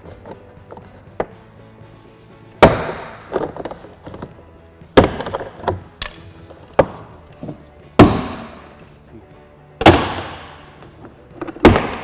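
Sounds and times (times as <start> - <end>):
plastic clips snapping loose: 2.6 - 6.8.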